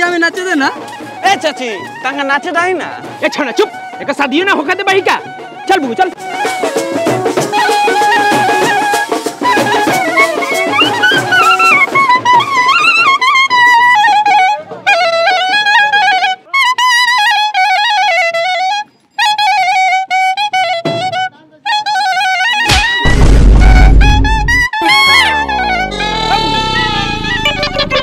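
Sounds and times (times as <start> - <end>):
drum beats: 0.0 - 15.3, 20.7 - 21.3, 22.5 - 28.0
other instruments: 0.0 - 28.0
clarinet playing folk melody: 0.6 - 28.0.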